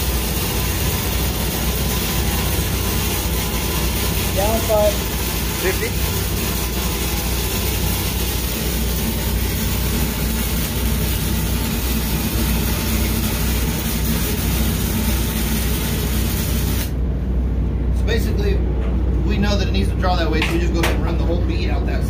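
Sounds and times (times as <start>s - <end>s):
welding arc crackling and hissing: 0.0s - 17.0s
steady low hum: 0.0s - 22.0s.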